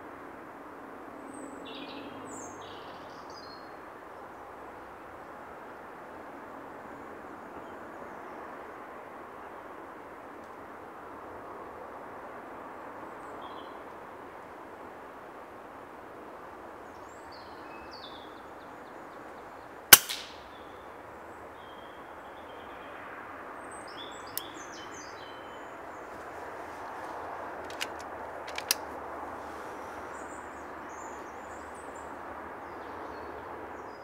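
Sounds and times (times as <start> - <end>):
woodland ambience: 15.8 - 34.0
air rifle shot: 19.9 - 20.4
small birds chirping: 23.6 - 26.4
light clicks: 27.6 - 28.9.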